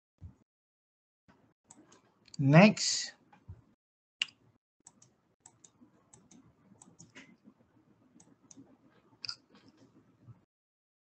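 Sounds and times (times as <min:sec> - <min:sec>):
computer mouse clicks: 0:04.2 - 0:07.4, 0:08.2 - 0:09.9.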